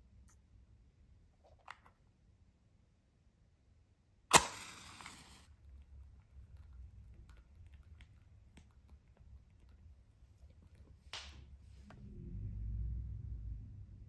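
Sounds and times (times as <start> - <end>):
match striking on matchbox: 4.3 - 5.5
match head flaring hiss: 4.3 - 5.6
burning match crackles: 4.3 - 5.9.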